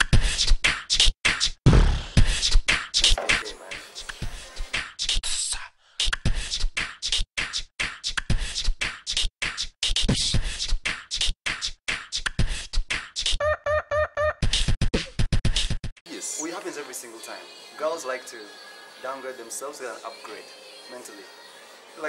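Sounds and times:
pitched vocal stutters: 0:00.0 - 0:13.4, 0:14.4 - 0:15.9
chopped rhythmic vocal hits: 0:00.0 - 0:16.0.

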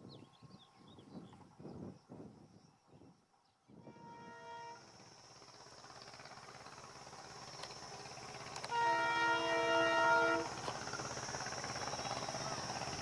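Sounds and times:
train rumble: 0:00.0 - 0:13.0
locomotive horn blasts: 0:03.8 - 0:05.0, 0:08.6 - 0:10.7.

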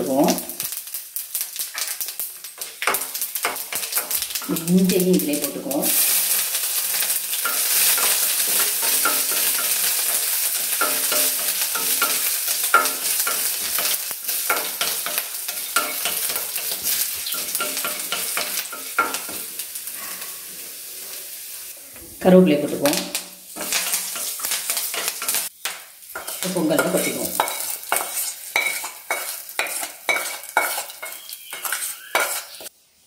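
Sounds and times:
spices sizzling in hot oil: 0:00.0 - 0:33.0
wooden spatula scraping a pan: 0:26.2 - 0:32.7.

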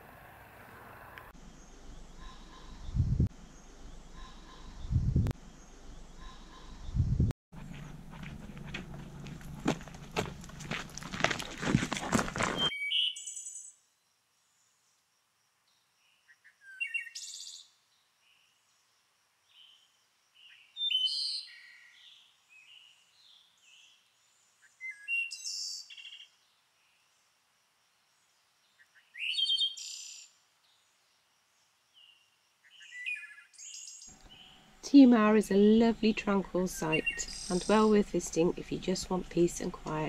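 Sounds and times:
quiet bird chirps: 0:01.4 - 0:07.0, 0:15.7 - 0:27.3, 0:28.2 - 0:35.3
songbird singing phrases: 0:12.6 - 0:14.7, 0:15.7 - 0:27.3, 0:28.3 - 0:40.0.

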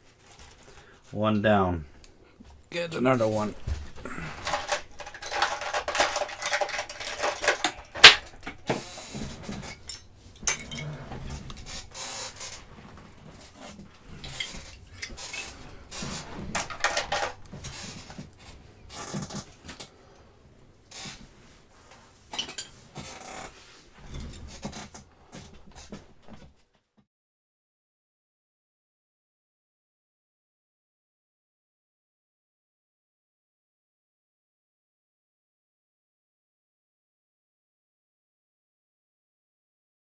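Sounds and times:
tools clattering on workbench: 0:03.6 - 0:19.8, 0:22.3 - 0:23.1.

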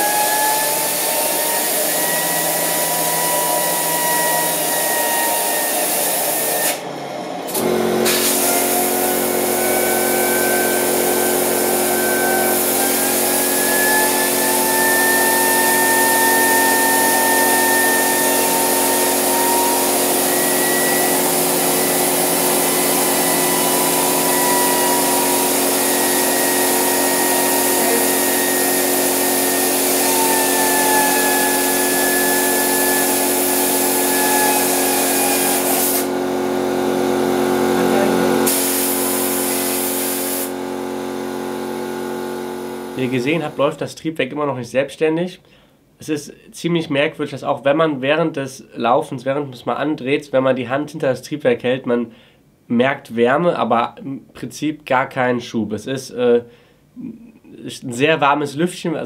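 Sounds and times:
turbine air rush and whine: 0:00.0 - 0:41.9.

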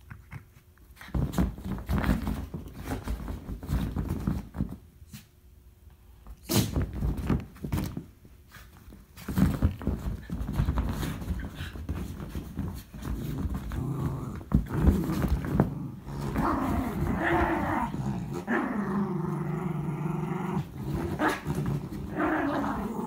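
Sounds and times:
dogs scuffling: 0:01.0 - 0:04.8, 0:06.7 - 0:18.5.

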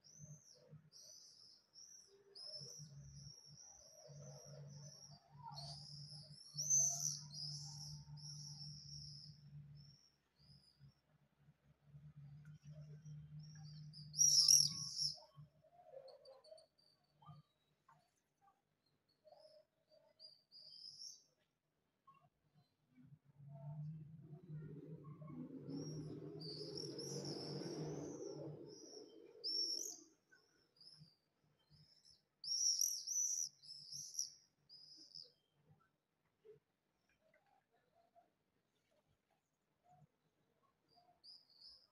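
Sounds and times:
swifts screaming calls: 0:14.2 - 0:15.2, 0:25.8 - 0:30.1, 0:32.4 - 0:34.3.

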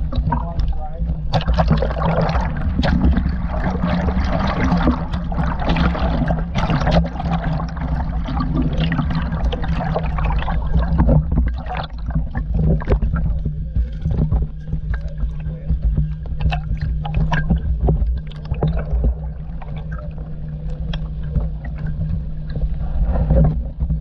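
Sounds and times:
steady low hum: 0:00.0 - 0:24.0
river water splashing and gurgling: 0:01.3 - 0:13.3.

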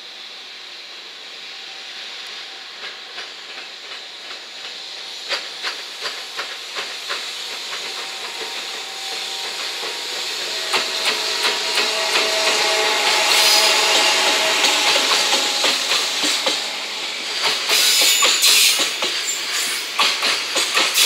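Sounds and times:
train passing with steady hiss: 0:00.0 - 0:21.0
humming tone: 0:08.2 - 0:17.9.

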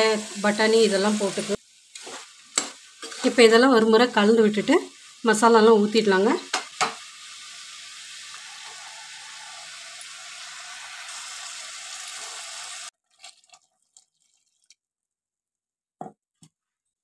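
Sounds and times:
vegetables sizzling in pan: 0:00.0 - 0:13.0.

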